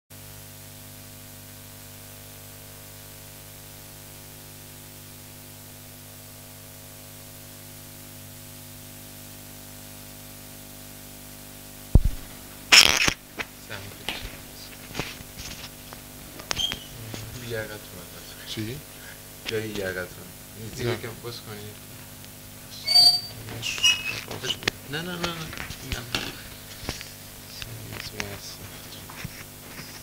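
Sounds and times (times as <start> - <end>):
electrical hum: 0.3 - 30.0
microphone handling rustling and clicks: 11.9 - 17.4, 23.3 - 30.0
sharp knock: 12.0 - 12.8.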